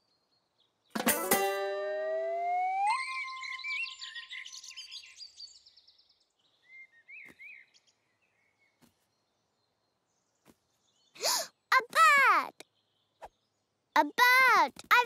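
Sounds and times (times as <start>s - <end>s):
birds chirping: 0.0s - 15.0s
steady whistle-like tone: 1.8s - 4.2s.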